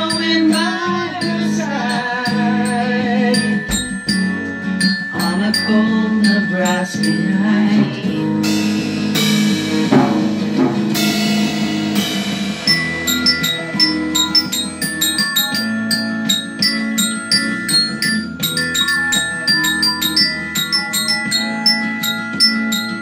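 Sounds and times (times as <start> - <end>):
glockenspiel notes: 0.0 - 8.1, 12.6 - 23.0
drum kit playing: 3.4 - 4.8, 8.4 - 14.1
low thump: 3.6 - 4.4.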